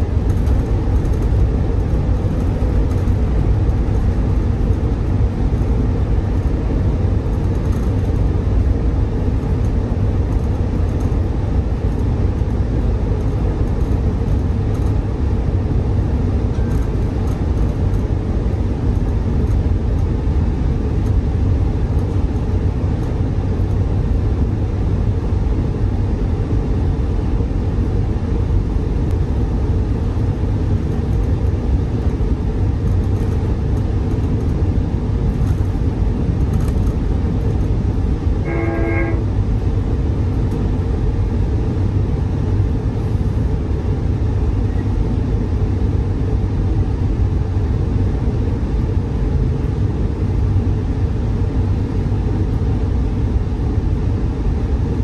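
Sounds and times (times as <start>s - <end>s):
train rumbling: 0.0s - 55.0s
short pitched tone: 38.4s - 39.2s.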